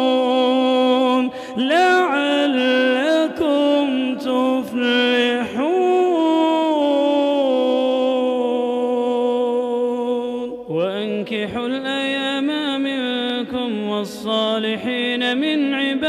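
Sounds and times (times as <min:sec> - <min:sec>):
man chanting: 0:00.0 - 0:16.0.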